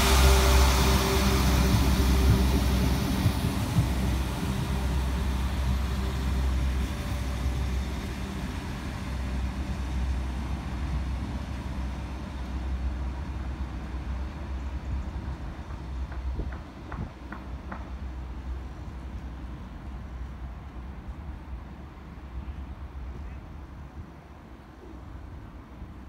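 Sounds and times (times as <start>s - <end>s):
diesel train engine drone: 0.0s - 26.0s
wheels rushing on rail: 0.0s - 26.0s.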